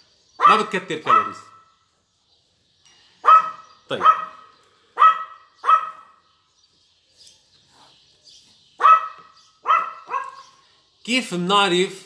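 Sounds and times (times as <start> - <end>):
dog barking: 0.4 - 1.8, 3.2 - 6.2, 8.8 - 10.6.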